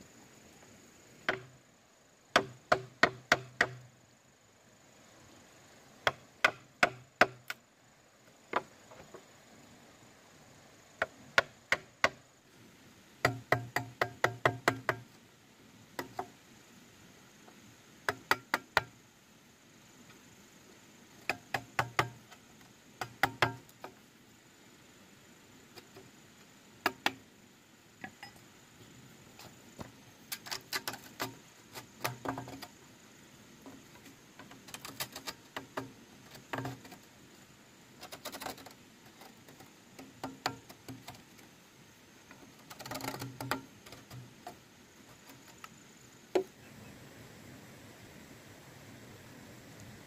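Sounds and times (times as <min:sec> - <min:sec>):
faint high-pitched tone: 0:28.0 - 0:28.5.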